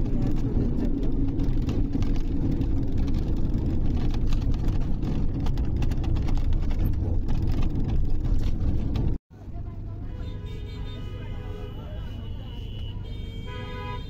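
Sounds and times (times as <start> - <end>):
small clicks and rattles: 0.0 - 9.2
vehicle rumble inside cabin: 0.0 - 10.1.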